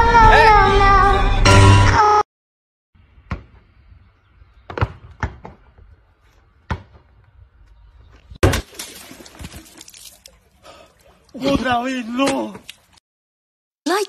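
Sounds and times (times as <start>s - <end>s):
rubber ball bouncing on paving: 4.6s - 5.8s.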